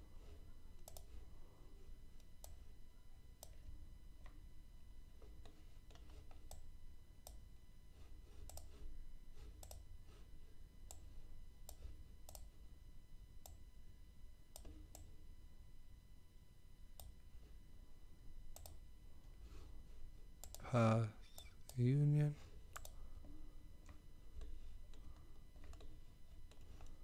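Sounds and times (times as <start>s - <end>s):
steady low hum: 0.0s - 27.0s
computer mouse clicks: 0.8s - 1.2s, 2.2s - 2.7s, 3.4s - 4.4s, 5.2s - 7.4s, 8.3s - 12.5s, 13.4s - 13.6s, 14.5s - 15.1s, 16.9s - 17.3s, 18.5s - 18.8s, 20.4s - 20.6s, 21.2s - 21.8s, 22.6s - 23.0s, 23.8s - 27.0s.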